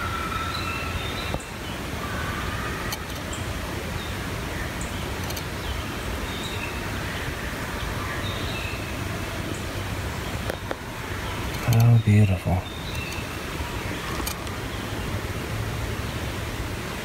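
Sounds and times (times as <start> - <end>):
steady rushing hiss: 0.0 - 17.0
faint clicks: 2.9 - 3.3, 11.4 - 12.0, 12.9 - 13.3, 14.1 - 14.6
bird chirps: 10.3 - 13.4.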